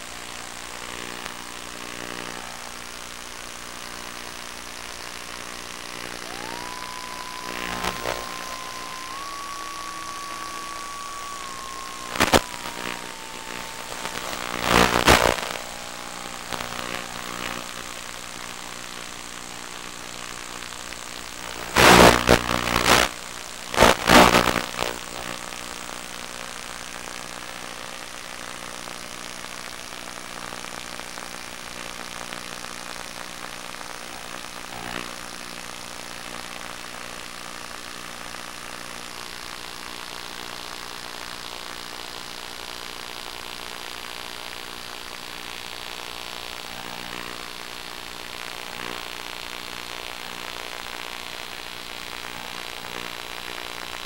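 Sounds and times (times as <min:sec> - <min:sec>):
electric motor and propeller whine: 0:05.7 - 0:19.0
short loud rushes of noise: 0:06.2 - 0:18.5.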